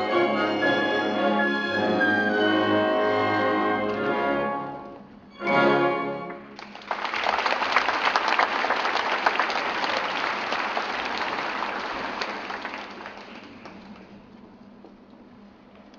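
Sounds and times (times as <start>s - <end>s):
audience applauding: 6.5s - 14.2s.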